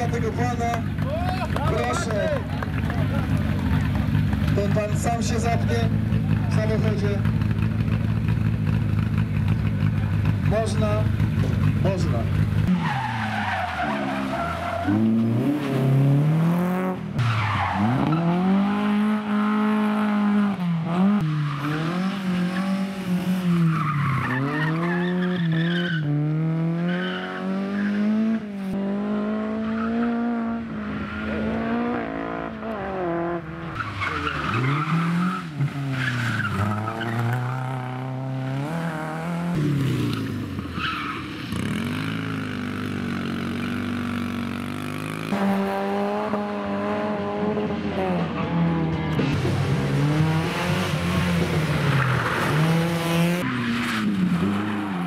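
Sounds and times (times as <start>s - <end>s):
rally car engines revving: 0.0s - 55.0s
tyres squealing and skidding: 12.6s - 16.1s, 17.1s - 20.2s, 21.0s - 26.2s, 26.8s - 28.4s, 29.5s - 31.8s, 33.5s - 44.0s, 50.2s - 55.0s.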